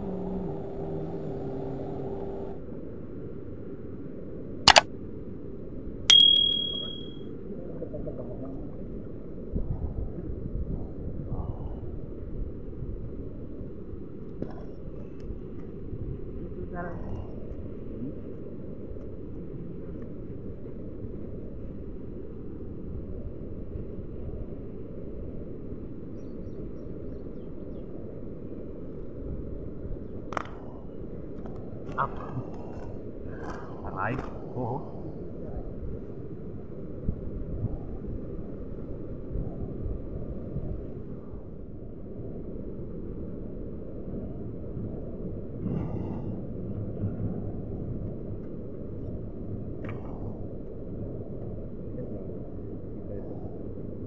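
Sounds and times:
quick double click: 0:06.1 - 0:07.0
bright bell ding: 0:06.1 - 0:07.1.

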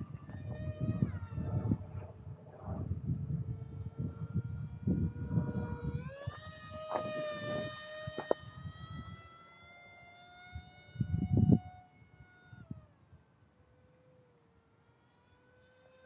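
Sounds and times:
wind buffeting microphone: 0:00.0 - 0:09.5, 0:10.5 - 0:12.9
model plane motor whining: 0:00.0 - 0:16.0.

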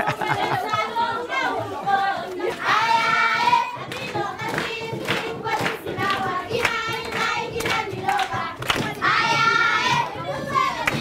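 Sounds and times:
children singing: 0:00.0 - 0:11.0
hands clapping: 0:03.8 - 0:09.4, 0:10.8 - 0:11.0.

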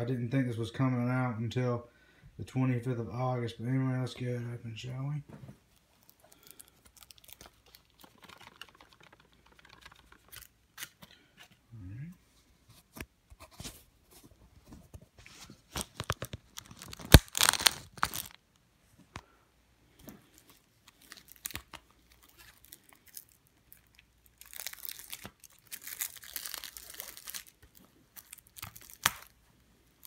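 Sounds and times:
plastic wrap tearing and crinkling: 0:05.8 - 0:11.0, 0:15.4 - 0:18.4, 0:20.3 - 0:30.0.

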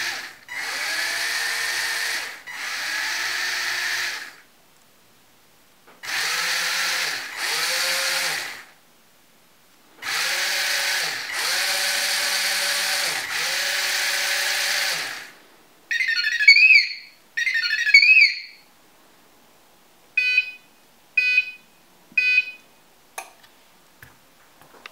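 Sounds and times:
small gear motors whirring: 0:00.0 - 0:04.4, 0:06.0 - 0:08.7, 0:10.0 - 0:15.3
warbling electronic chirps: 0:15.9 - 0:18.6
short beeps: 0:20.2 - 0:22.6.

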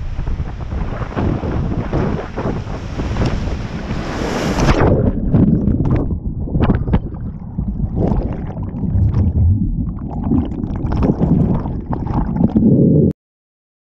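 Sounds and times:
muffled underwater whitewater rumble: 0:00.0 - 0:13.1
gurgling bubbles: 0:04.6 - 0:13.1.

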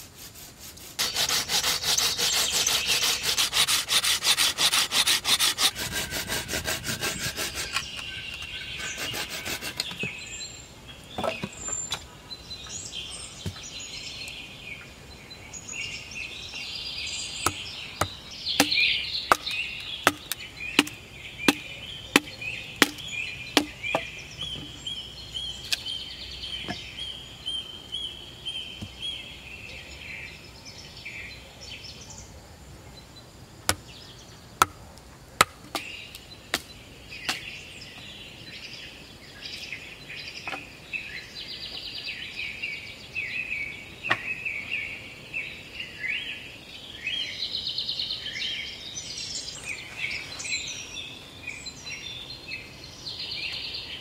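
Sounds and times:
birds and insects chirping: 0:00.0 - 0:54.0
wooden club striking metal wedge: 0:17.5 - 0:19.5, 0:23.6 - 0:24.1.

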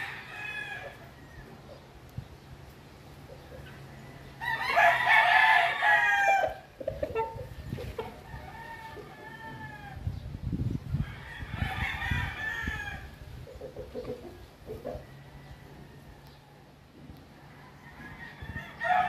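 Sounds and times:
rooster crowing: 0:00.0 - 0:01.4, 0:03.8 - 0:06.6, 0:08.2 - 0:10.0, 0:11.0 - 0:13.2, 0:17.4 - 0:19.0.

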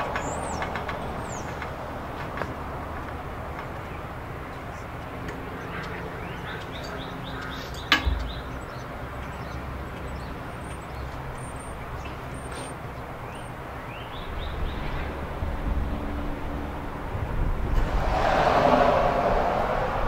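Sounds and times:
birds chirping: 0:00.0 - 0:15.3.

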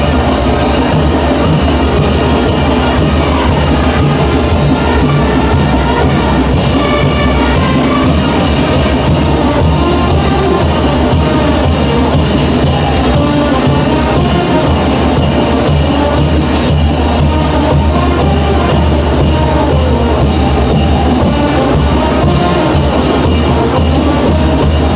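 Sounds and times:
steady drum beat: 0:00.0 - 0:24.9
wind band playing dance music: 0:00.0 - 0:24.9.

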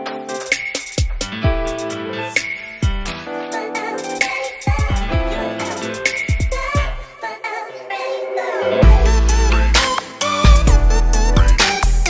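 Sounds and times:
melodic lead line: 0:05.0 - 0:06.5, 0:07.7 - 0:11.6
heavy bass notes: 0:08.8 - 0:12.0.

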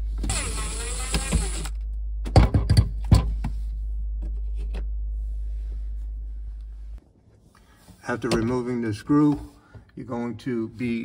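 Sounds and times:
steady low hum: 0:00.0 - 0:11.0
cordless screwdriver whirring: 0:00.3 - 0:01.8.

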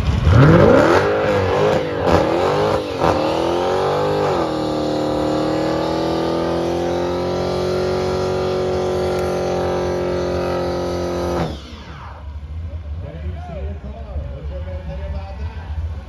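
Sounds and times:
car engine revving hard: 0:00.0 - 0:11.8.

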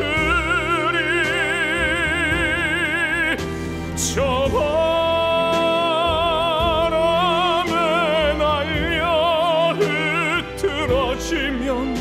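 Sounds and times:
backing accompaniment: 0:00.0 - 0:12.0
man singing operatically: 0:00.0 - 0:12.0.

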